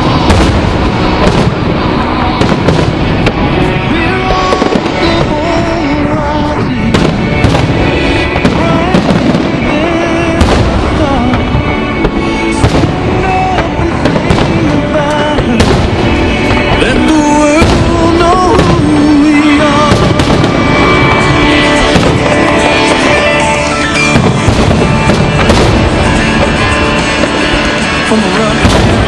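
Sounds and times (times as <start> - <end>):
fireworks bursting with bangs: 0.0 - 29.0
loud music with melody: 0.0 - 29.0.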